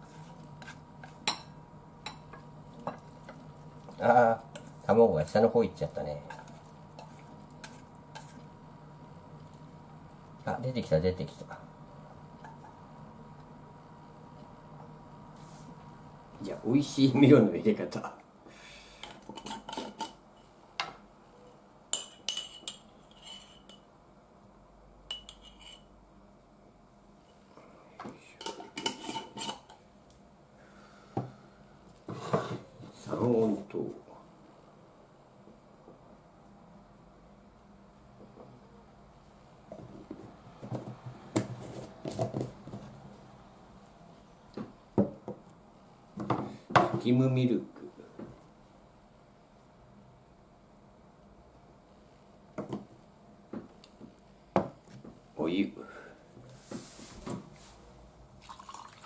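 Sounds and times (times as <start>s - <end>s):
spoon scraping glass jar: 22.4s - 23.8s, 28.8s - 29.7s.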